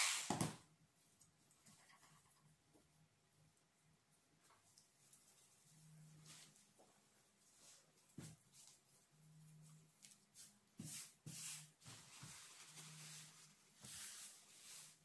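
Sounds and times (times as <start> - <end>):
paper towel rubbing on table: 10.8 - 15.0.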